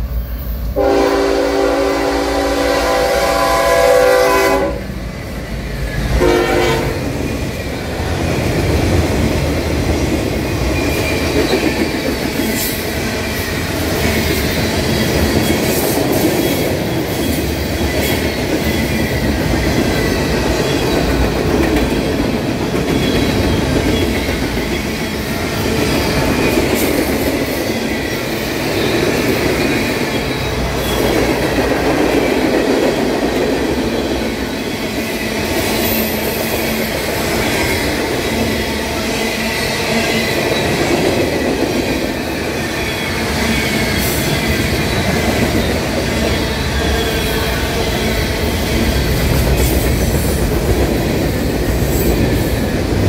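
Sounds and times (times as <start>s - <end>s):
train horn: 0.7s - 4.9s, 6.1s - 7.1s
train wheels rumbling and clattering: 4.6s - 53.0s.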